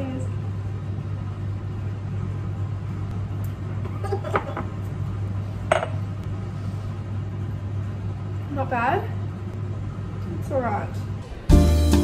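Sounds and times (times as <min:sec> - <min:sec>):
glass set down on counter: 0:05.7 - 0:06.0.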